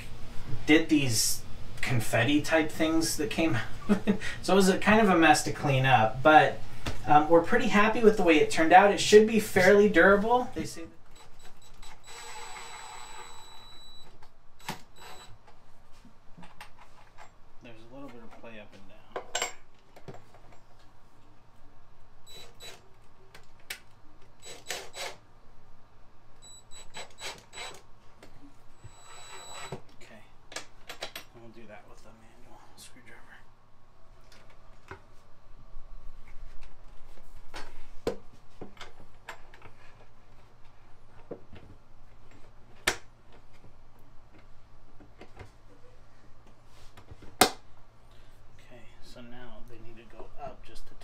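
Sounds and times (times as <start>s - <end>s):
cordless drill driving screws: 11.1s - 15.4s, 22.3s - 22.8s, 24.4s - 25.2s, 26.4s - 27.9s, 28.8s - 29.8s.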